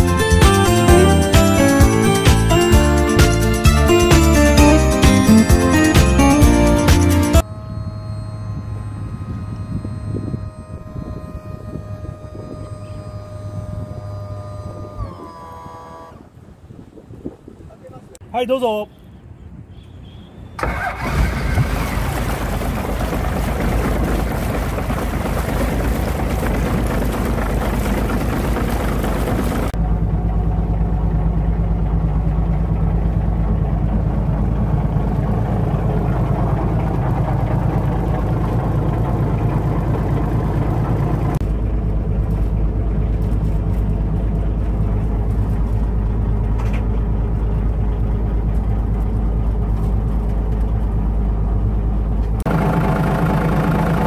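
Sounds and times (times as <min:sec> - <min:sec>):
boat engine idling: 0:00.0 - 0:16.7, 0:20.6 - 0:54.0
hiss and splash of exhaust water: 0:20.6 - 0:51.0, 0:52.5 - 0:54.0.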